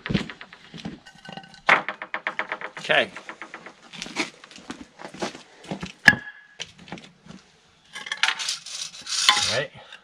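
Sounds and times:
sharp metallic clank: 0.0s - 4.4s, 8.0s - 9.6s
wooden knocks and scrapes: 0.0s - 5.9s.

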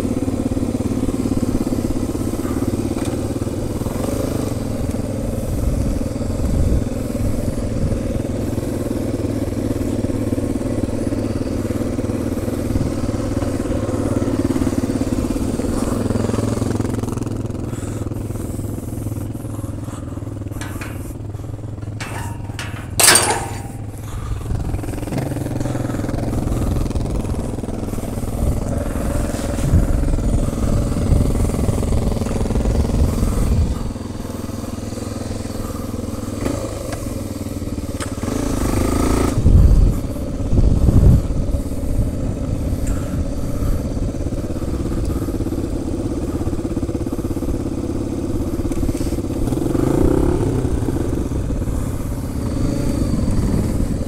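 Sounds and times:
motorcycle engine running: 0.0s - 54.0s
metal gate clanging: 20.6s - 24.0s.

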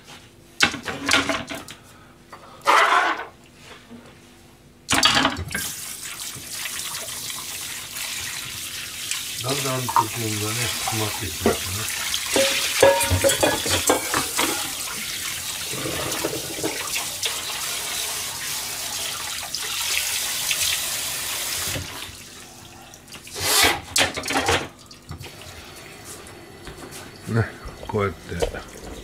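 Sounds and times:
tap running into sink: 9.8s - 15.0s, 27.7s - 29.0s
clinking of pots and dishes: 12.3s - 14.9s, 15.8s - 16.9s, 24.0s - 24.8s.

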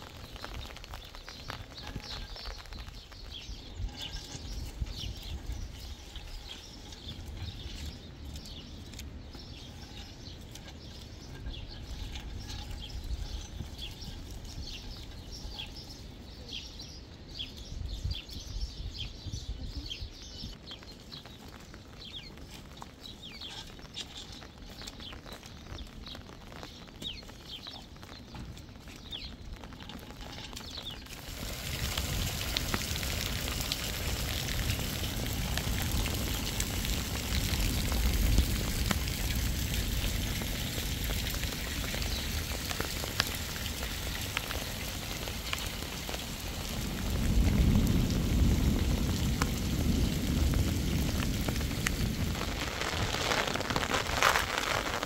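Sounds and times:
heavy rain: 0.0s - 6.6s, 29.0s - 55.0s
gusting wind: 0.0s - 55.0s
small birds chirping: 0.0s - 55.0s.

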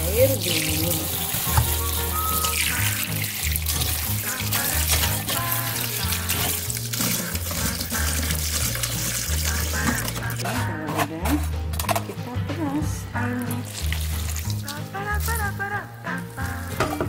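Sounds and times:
tap water running into sink: 0.0s - 10.4s, 13.6s - 15.5s
background music with bass line: 0.0s - 17.0s.

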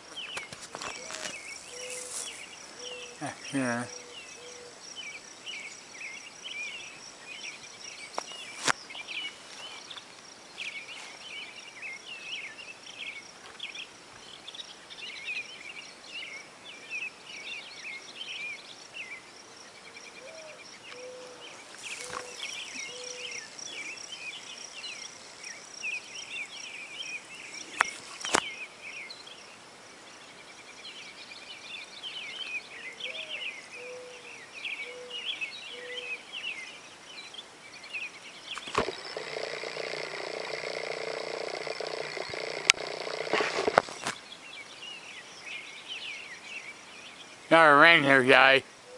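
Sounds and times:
small birds chirping and singing: 0.0s - 48.9s
high insect trill: 0.6s - 5.0s, 21.6s - 28.4s, 38.6s - 44.2s
short low bird calls: 0.8s - 4.8s, 20.2s - 24.0s.

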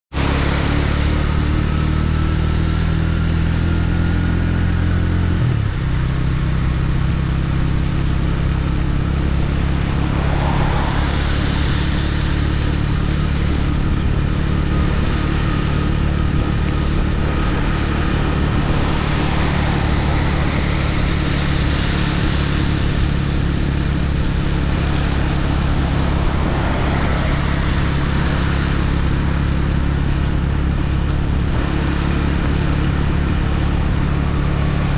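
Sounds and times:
road noise: 0.0s - 34.9s
motorcycle engine running: 0.1s - 34.9s
wind noise: 8.6s - 34.9s.

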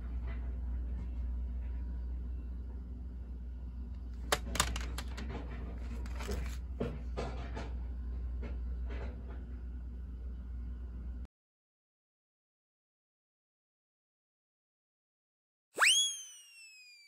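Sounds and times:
plastic cases clacking on wooden table: 4.2s - 6.6s.

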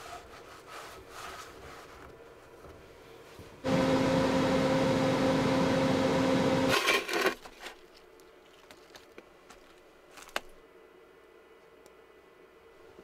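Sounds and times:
small motor humming: 3.7s - 6.7s.

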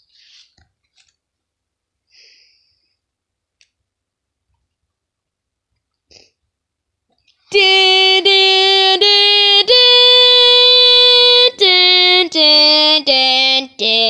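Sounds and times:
boy singing fanfare-like tune: 7.5s - 14.0s.

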